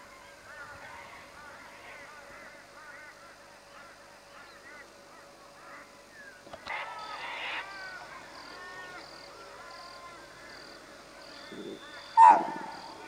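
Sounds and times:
birds chirping: 5.9 - 13.0
deer alarm bark: 12.1 - 13.0.

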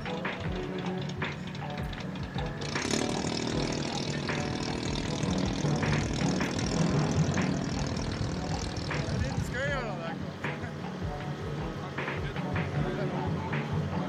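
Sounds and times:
boat engine rumbling: 0.0 - 14.0.

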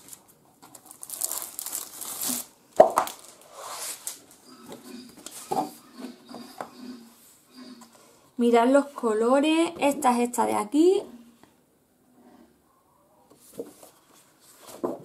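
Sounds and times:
plastic wrapping tearing and crinkling: 0.0 - 4.4
paper pad rustling and tapping: 13.5 - 15.0.

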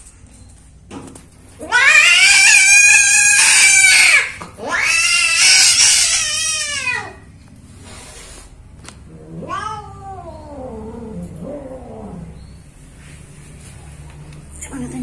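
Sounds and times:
cat yowling: 1.6 - 7.3, 9.1 - 12.4.

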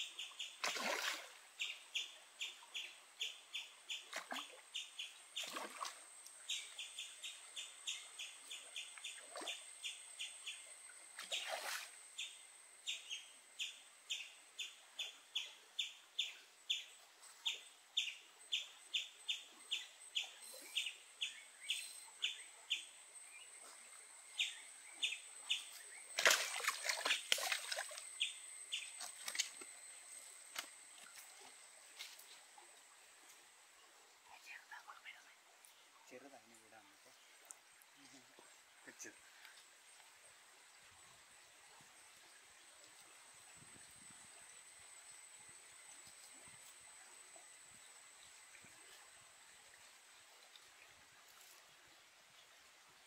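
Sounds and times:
faint high-pitched hum: 0.0 - 53.0
splashes: 0.6 - 1.4, 5.4 - 6.0, 11.2 - 12.0, 26.2 - 28.0.

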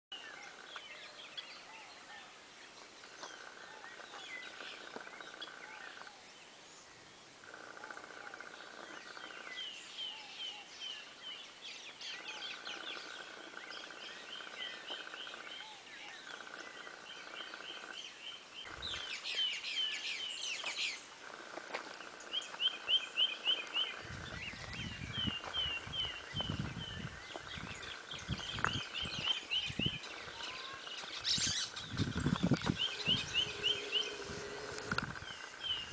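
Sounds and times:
birds chirping: 0.1 - 35.9
steady buzz: 31.7 - 35.9.

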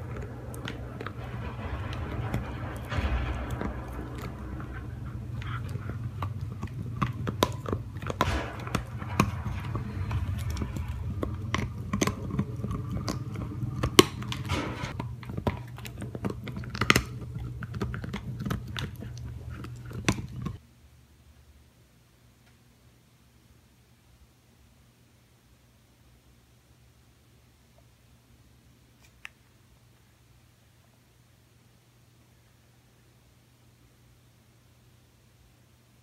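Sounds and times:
dog chewing plastic bottle: 3.5 - 20.6.

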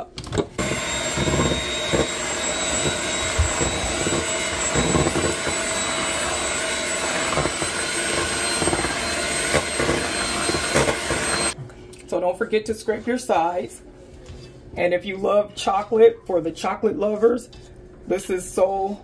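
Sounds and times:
electric hand mixer whirring: 0.3 - 11.6.

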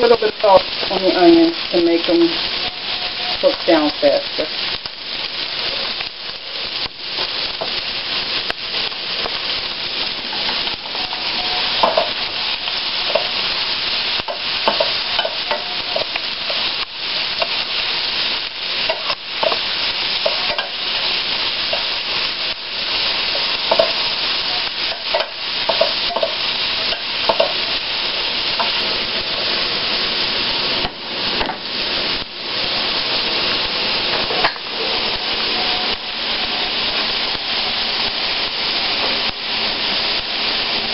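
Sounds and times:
onions sizzling in oil: 0.0 - 40.9
spoon scraping a pan: 10.3 - 13.4, 14.2 - 16.7, 18.8 - 22.2, 22.9 - 27.8.

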